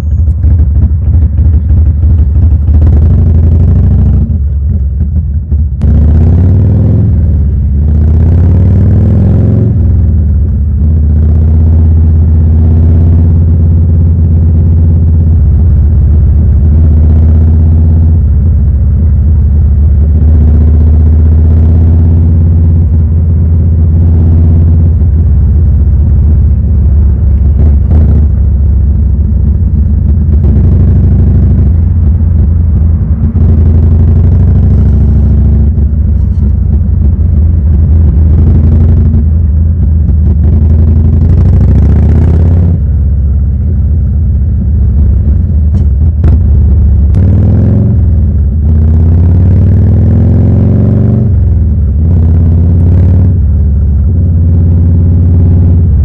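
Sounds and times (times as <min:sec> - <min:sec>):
motorcycle engine rumbling: 0:00.0 - 0:56.0.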